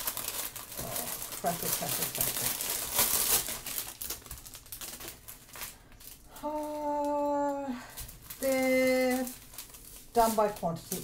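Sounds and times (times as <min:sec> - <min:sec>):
plastic packaging crinkling: 0:00.0 - 0:11.0
small bags clicking: 0:00.0 - 0:11.0
woman humming: 0:06.4 - 0:07.9.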